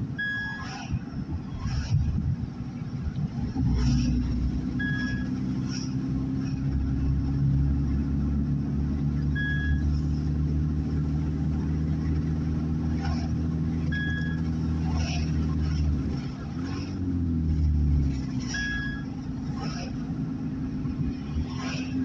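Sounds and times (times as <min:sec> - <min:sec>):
car engine and road noise: 0:00.0 - 0:22.0
short high beep: 0:00.2 - 0:00.8, 0:04.8 - 0:05.4, 0:09.4 - 0:09.9, 0:13.9 - 0:14.4, 0:18.5 - 0:19.1.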